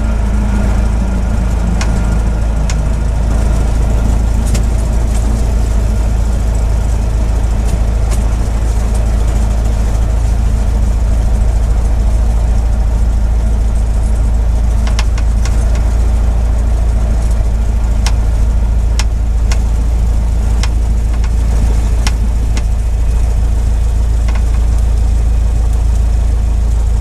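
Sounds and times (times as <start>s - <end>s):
propeller aircraft engine drone: 0.0s - 27.0s
sharp clicks: 14.8s - 15.9s, 24.2s - 24.6s.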